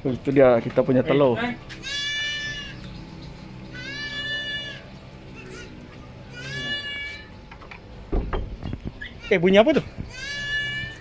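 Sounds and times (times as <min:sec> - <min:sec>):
goat bleating: 0:01.4 - 0:03.0, 0:03.6 - 0:07.4, 0:09.1 - 0:11.0.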